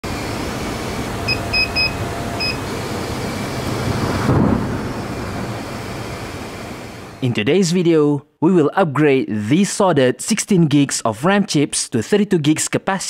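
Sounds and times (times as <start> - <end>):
short high electronic beeps: 1.3 - 2.6
steady rushing noise: 2.2 - 7.2
deeper noise swell: 2.9 - 7.3.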